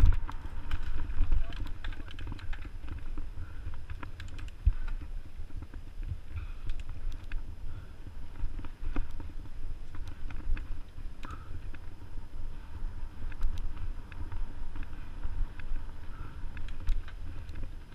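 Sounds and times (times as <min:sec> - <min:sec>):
bike rattling over bumps: 0:00.0 - 0:17.9
wind rumble on microphone: 0:00.0 - 0:17.9.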